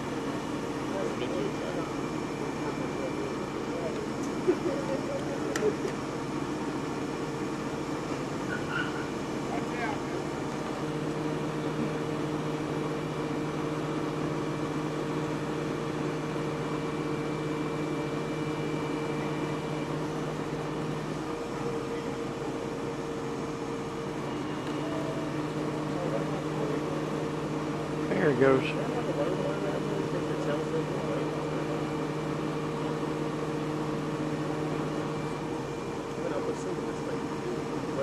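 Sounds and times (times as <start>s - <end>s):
large engine idling: 0.0s - 38.0s.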